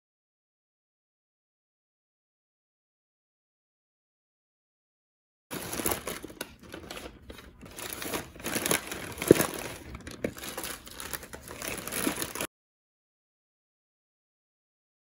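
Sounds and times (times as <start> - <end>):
plastic bag and packets crinkling: 5.5 - 12.5.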